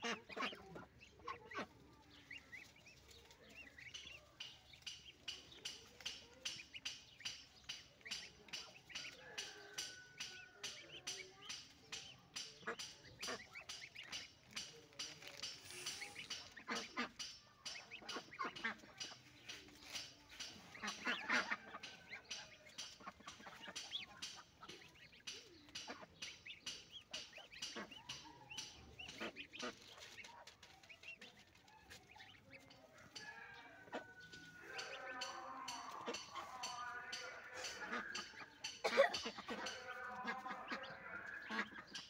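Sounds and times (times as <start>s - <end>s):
goslings peeping: 0.0s - 42.0s
leaves rustling: 14.4s - 17.3s, 27.9s - 37.7s.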